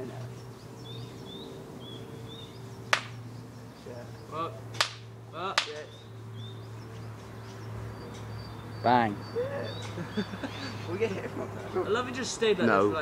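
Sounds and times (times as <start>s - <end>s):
sharp cracks from fire: 2.9s - 3.2s, 4.7s - 5.9s.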